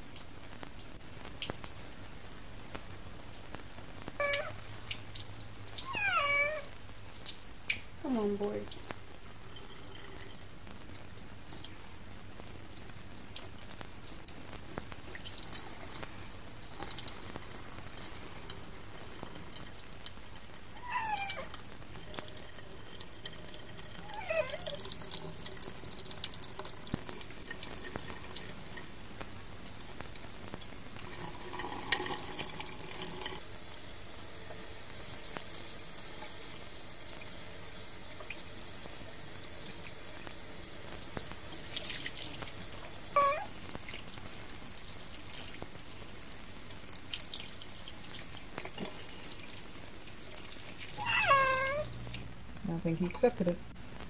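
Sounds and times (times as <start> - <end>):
water running from tap: 0.0 - 52.3
cat crying: 4.2 - 4.6, 5.8 - 6.8, 20.8 - 21.5, 24.0 - 24.8, 43.1 - 43.6, 50.9 - 52.0.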